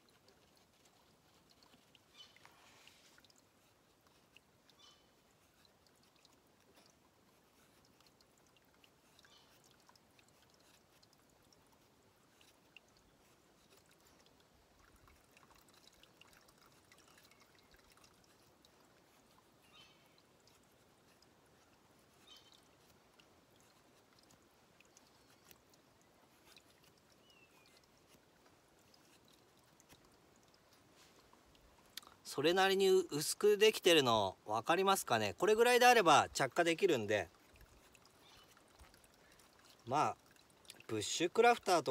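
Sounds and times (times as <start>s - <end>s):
stream trickling: 0.0s - 41.9s
knife shaving wood: 9.0s - 11.2s.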